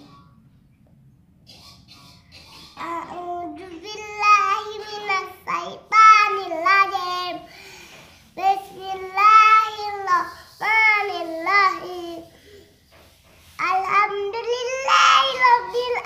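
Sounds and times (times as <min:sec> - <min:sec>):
boy singing unaccompanied: 0:02.8 - 0:07.5, 0:08.3 - 0:12.4, 0:13.6 - 0:16.0.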